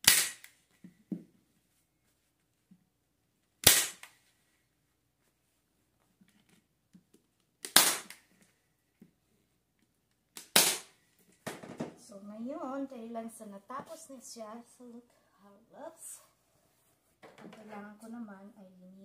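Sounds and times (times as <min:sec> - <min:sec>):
staple gun snaps: 0:00.0 - 0:00.6.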